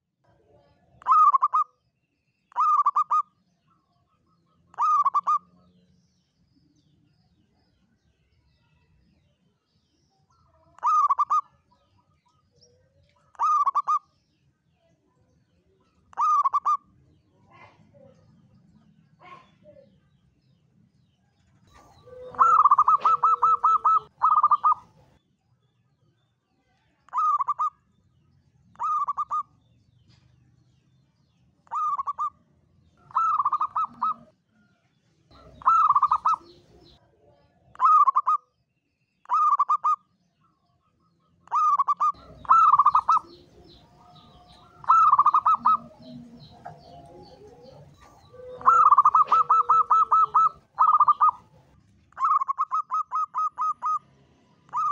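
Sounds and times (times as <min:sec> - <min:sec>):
dove cooing: 0:01.0 - 0:01.6, 0:02.5 - 0:03.3, 0:04.7 - 0:05.5, 0:10.8 - 0:11.5, 0:13.4 - 0:14.0, 0:16.1 - 0:16.8, 0:21.7 - 0:25.1, 0:27.1 - 0:27.7, 0:28.8 - 0:29.5, 0:31.7 - 0:32.3, 0:33.0 - 0:34.3, 0:35.3 - 0:37.0, 0:37.8 - 0:38.4, 0:39.3 - 0:40.0, 0:41.5 - 0:54.0, 0:54.7 - 0:54.9.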